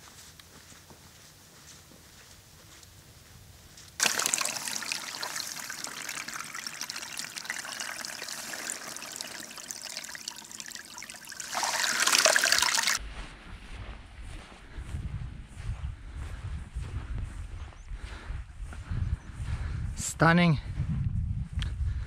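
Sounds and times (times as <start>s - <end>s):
flask filling in water: 4.0s - 13.0s
stream trickling over rocks: 4.0s - 13.0s.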